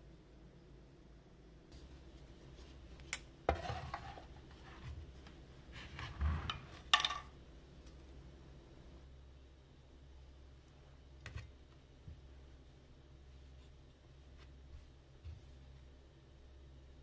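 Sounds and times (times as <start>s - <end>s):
hard objects knocking and clinking: 6.5s - 7.3s.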